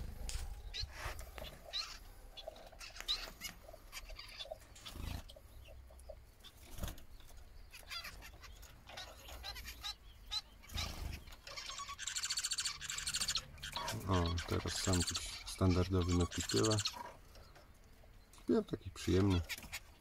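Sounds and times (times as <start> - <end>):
finches chirping: 0.0 - 20.0
fast buzzy bird trill: 7.7 - 17.2.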